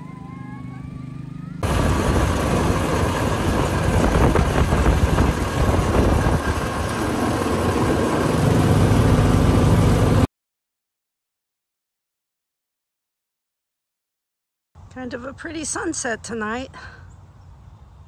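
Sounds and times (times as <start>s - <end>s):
farm machine engine running: 0.0s - 10.3s.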